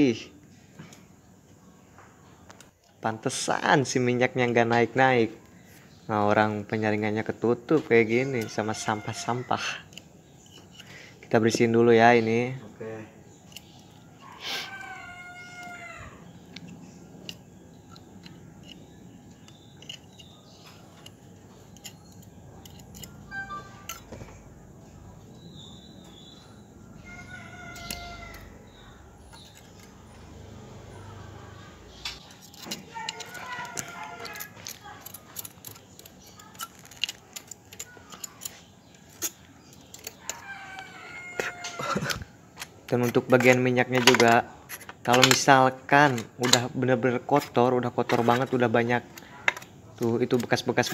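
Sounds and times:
metal tool clicking and scraping: 0:08.1 - 0:11.7, 0:13.3 - 0:14.4, 0:15.6 - 0:24.2, 0:27.3 - 0:30.1, 0:31.9 - 0:50.9.

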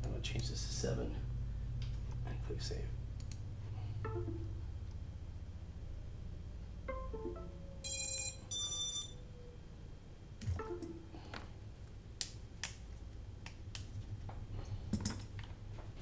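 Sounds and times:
high-pitched electronic beeps: 0:04.1 - 0:04.7, 0:06.9 - 0:09.3.

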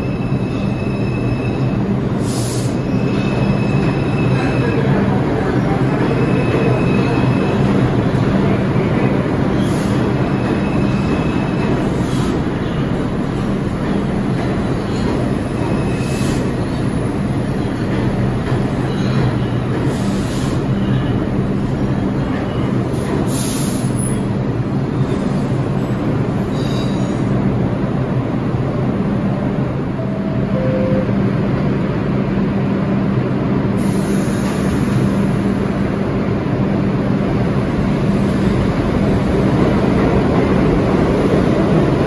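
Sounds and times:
train wheel squeals: 0:00.0 - 0:05.0, 0:06.0 - 0:07.8, 0:09.5 - 0:13.0, 0:14.6 - 0:17.9, 0:18.6 - 0:21.4, 0:26.5 - 0:27.4
subway train noise: 0:00.0 - 0:42.0.

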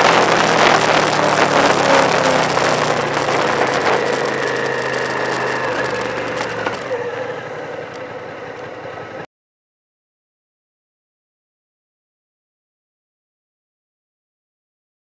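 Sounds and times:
road noise hiss: 0:00.0 - 0:09.2
car engine hum: 0:00.0 - 0:09.3.

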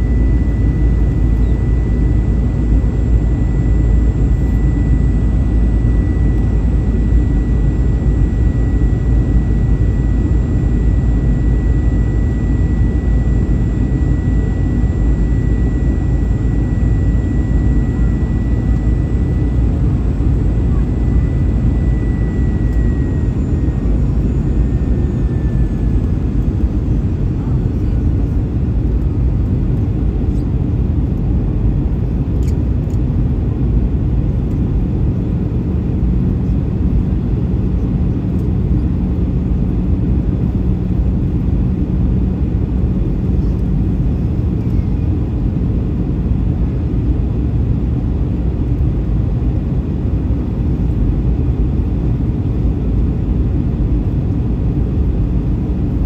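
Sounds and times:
airliner cabin noise: 0:00.0 - 0:34.7
low steady hum: 0:00.0 - 0:56.0.

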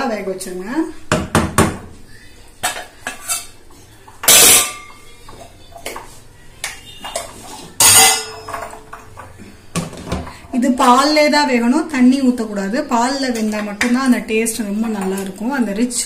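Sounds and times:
cookware clattering on a pan: 0:02.6 - 0:11.4, 0:13.0 - 0:15.7.

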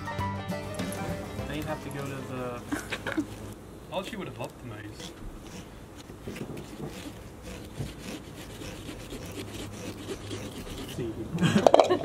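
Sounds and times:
knives sawing pumpkin rind: 0:04.3 - 0:11.3.

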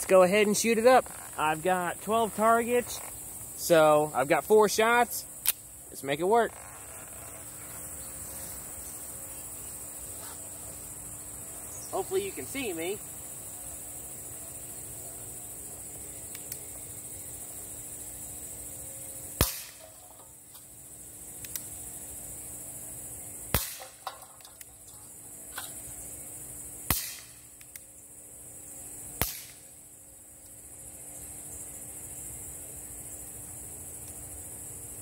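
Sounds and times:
crickets chirring: 0:00.0 - 0:35.0
faint clicks: 0:16.2 - 0:16.7, 0:21.4 - 0:21.7
air pistol shots popping: 0:19.4 - 0:20.3, 0:23.5 - 0:24.7, 0:26.9 - 0:27.8, 0:29.2 - 0:29.7.

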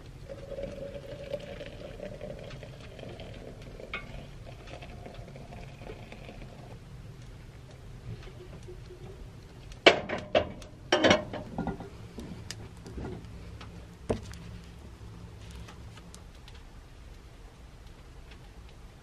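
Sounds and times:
low steady hum: 0:00.0 - 0:19.0
metal kettle and coffee press clunks: 0:00.3 - 0:05.3, 0:09.8 - 0:11.9.

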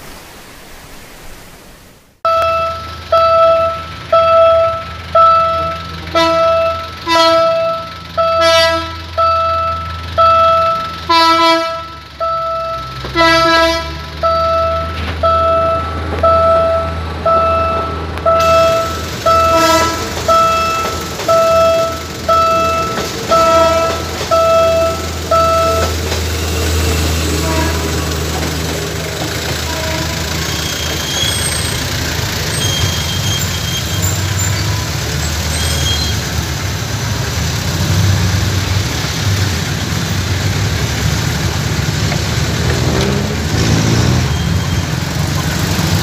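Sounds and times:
level-crossing warning bell: 0:02.3 - 0:36.6, 0:44.2 - 0:46.0
diesel train passing: 0:02.3 - 0:46.0
low engine rumble: 0:02.3 - 0:46.0
short train horn toots: 0:05.6 - 0:09.2, 0:11.1 - 0:12.0, 0:13.1 - 0:14.1, 0:18.4 - 0:20.9, 0:22.5 - 0:28.4, 0:29.2 - 0:31.4.

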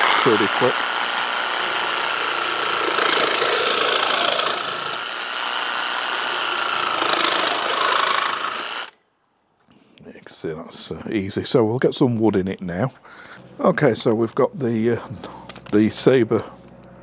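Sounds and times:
jigsaw cutting plastic: 0:00.0 - 0:09.0.

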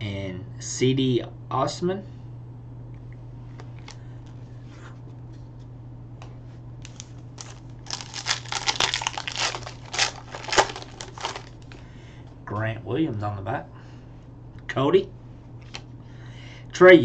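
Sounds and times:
cards shuffling clicks: 0:06.8 - 0:11.9, 0:15.6 - 0:15.9
foil wrapper crinkling: 0:06.8 - 0:11.9.

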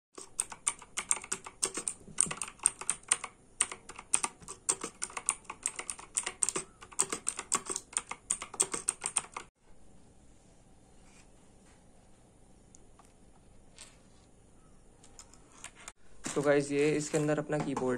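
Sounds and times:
fast typing on mechanical keyboard: 0:00.2 - 0:09.5.

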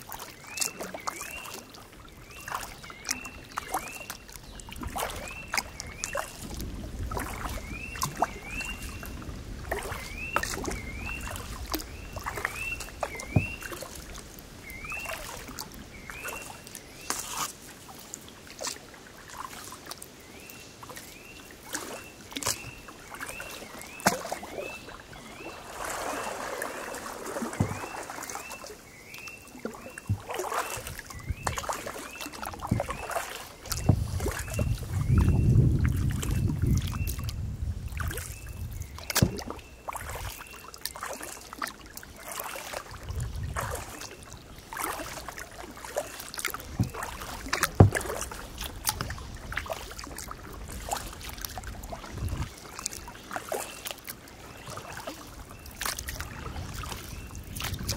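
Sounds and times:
paddle strokes with splashes: 0:00.0 - 0:57.9
water drips: 0:00.0 - 0:57.9
knocks against hull: 0:27.4 - 0:28.0, 0:39.1 - 0:39.6, 0:46.7 - 0:49.1.

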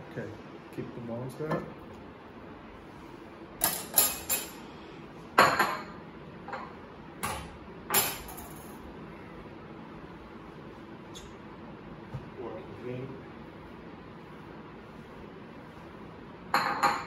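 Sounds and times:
dishes and cutlery clinking: 0:03.6 - 0:04.6.

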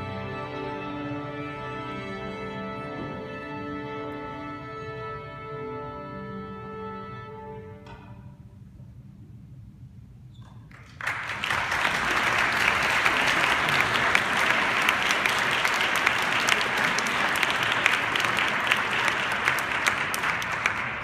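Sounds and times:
audience applauding: 0:10.7 - 0:21.0.

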